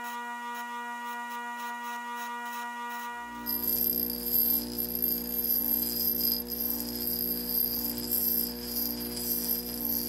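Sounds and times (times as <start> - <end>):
bench grinder grinding steel: 0.0 - 10.0.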